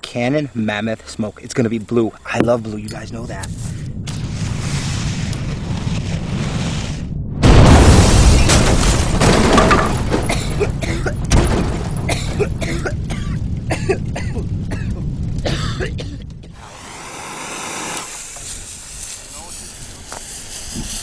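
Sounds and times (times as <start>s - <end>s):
loud explosion: 3.1s - 20.7s
debris clattering and breaking: 7.4s - 15.4s.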